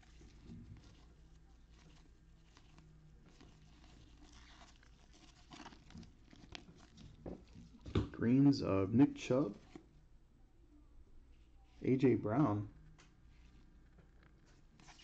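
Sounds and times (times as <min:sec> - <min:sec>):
cards being flipped through: 0:00.1 - 0:08.1, 0:14.1 - 0:15.0.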